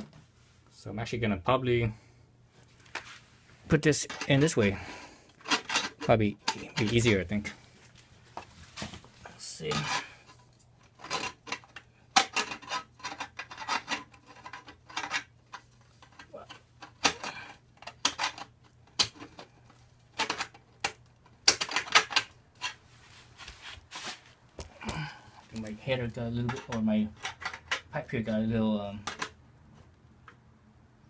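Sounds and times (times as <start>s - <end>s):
metal pipe clinking and scraping: 9.6s - 15.3s.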